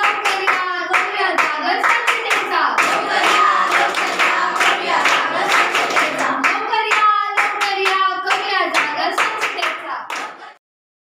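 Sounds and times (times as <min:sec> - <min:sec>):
group singing: 0:00.0 - 0:10.6
hands clapping in a steady beat: 0:00.0 - 0:10.6.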